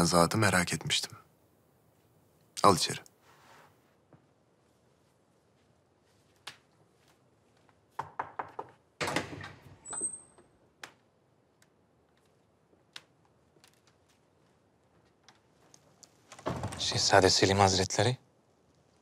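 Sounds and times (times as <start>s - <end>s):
door clicks and knocks: 8.0s - 10.1s, 16.3s - 17.1s
door squeak: 9.0s - 10.5s.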